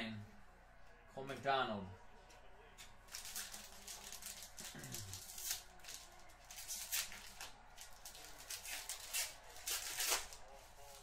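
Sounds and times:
foil wrapper crinkling: 0:03.1 - 0:11.0.

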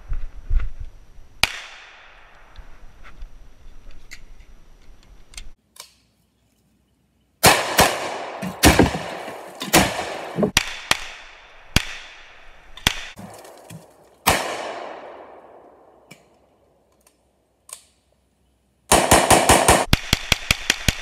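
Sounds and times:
rifle shots with echo: 0:07.4 - 0:11.2, 0:14.2 - 0:16.0, 0:18.9 - 0:21.0
rapid rifle fire: 0:18.9 - 0:21.0.

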